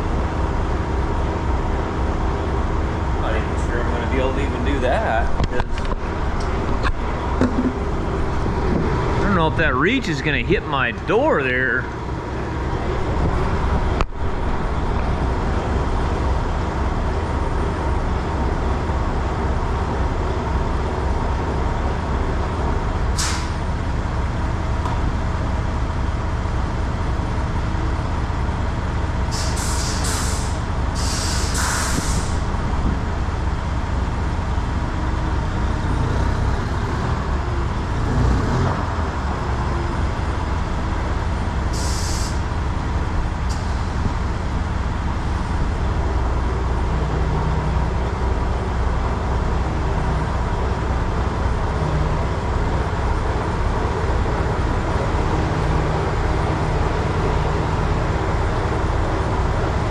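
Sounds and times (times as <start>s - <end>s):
truck diesel engine idling: 0.0s - 38.2s, 38.8s - 59.9s
air brake hisses: 23.2s - 23.6s, 29.3s - 32.4s, 41.7s - 42.4s.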